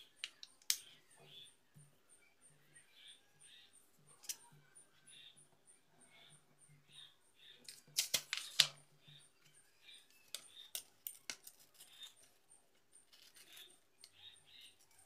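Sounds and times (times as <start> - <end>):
paper being folded: 7.7 - 8.8
paper rustling: 7.7 - 8.8.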